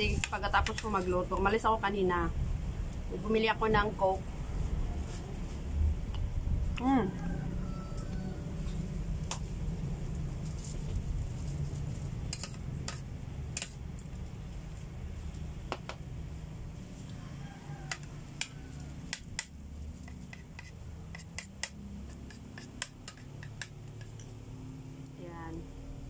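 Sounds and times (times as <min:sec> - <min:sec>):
fork scraping ceramic plate: 0:20.0 - 0:24.3.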